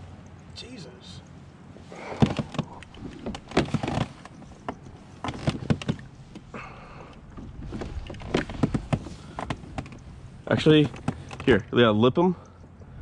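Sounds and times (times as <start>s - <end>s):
gear knocking on plastic kayak hull: 2.1s - 6.4s, 7.3s - 11.6s.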